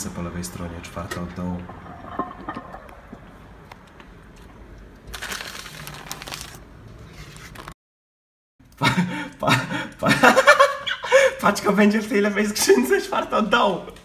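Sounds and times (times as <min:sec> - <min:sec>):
plastic mailer rustling: 0:05.1 - 0:07.8
man talking and chuckling: 0:08.7 - 0:11.7.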